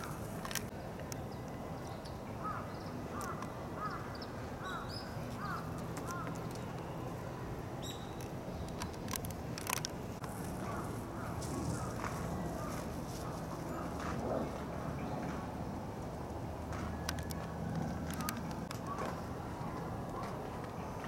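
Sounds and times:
bird calling: 2.4 - 6.7
sharp clicks: 17.0 - 19.1.

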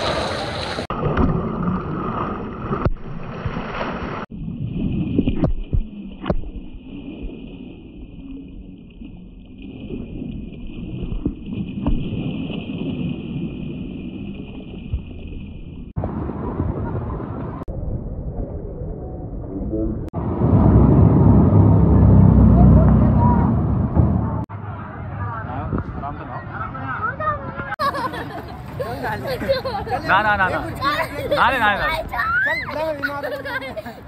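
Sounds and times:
water lapping and sloshing: 0.0 - 16.0
wind rumbling on microphone: 4.3 - 24.5, 25.3 - 26.7.

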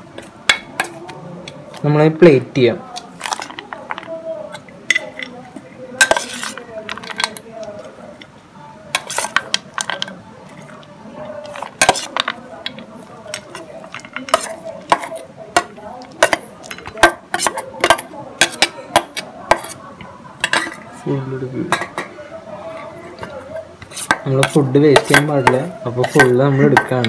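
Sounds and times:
metal spoon scraping steel bowl: 6.0 - 7.4, 8.9 - 10.7, 11.4 - 19.8, 22.9 - 27.0.

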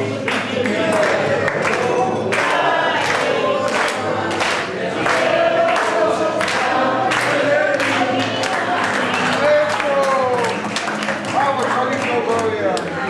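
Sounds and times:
group of people singing: 0.0 - 10.4
hands clapping in time: 0.2 - 13.0.

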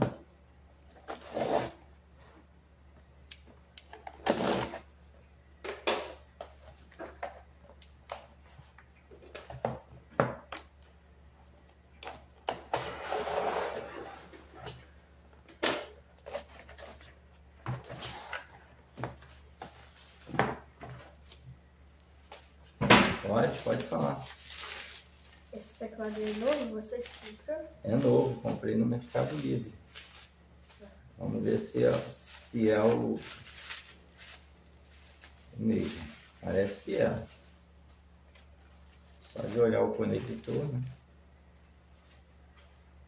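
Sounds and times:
box cutter opening cardboard: 4.2 - 4.9, 12.6 - 14.3
cardboard rustling: 23.4 - 37.6
bubble wrap crinkling: 23.4 - 41.0.

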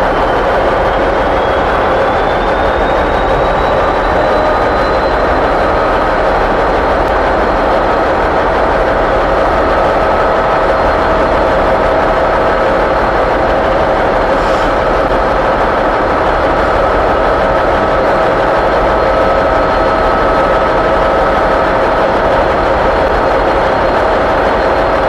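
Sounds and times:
diesel locomotive idling: 0.0 - 25.0
thin steady whine: 0.0 - 25.0.

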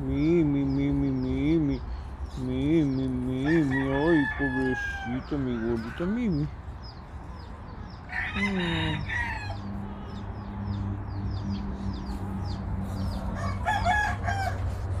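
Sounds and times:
rooster crowing: 3.4 - 6.3, 8.1 - 9.9, 13.3 - 15.0.

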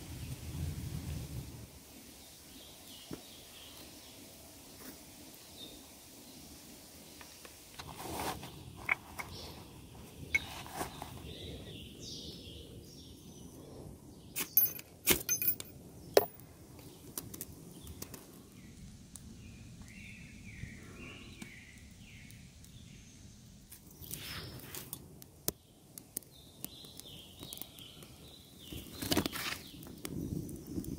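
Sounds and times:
tinder rustling: 7.7 - 11.6, 28.7 - 30.1
ferro rod scrapes: 7.8 - 9.6.

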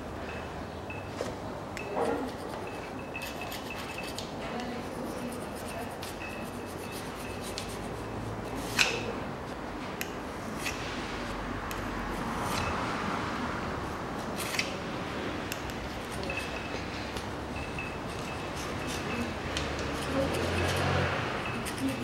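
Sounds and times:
metal blade scraping engine block: 18.2 - 22.0.

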